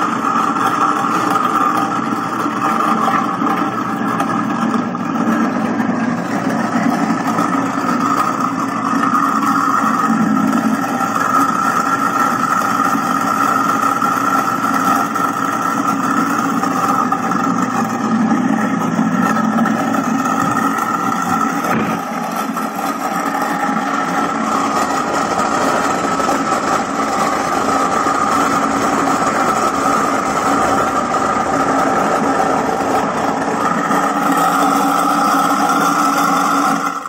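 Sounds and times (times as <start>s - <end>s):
food waste disposer grinding: 0.0s - 37.0s.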